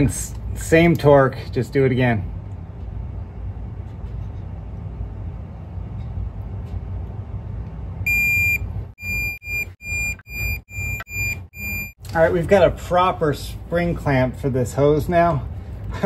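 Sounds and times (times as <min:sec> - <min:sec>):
steady low hum: 0:00.0 - 0:16.0
torque wrench beeping: 0:08.1 - 0:12.0.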